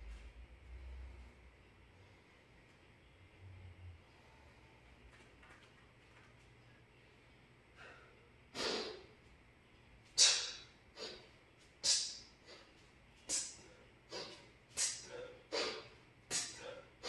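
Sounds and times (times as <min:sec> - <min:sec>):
forceful hissing breaths: 0:13.3 - 0:17.0.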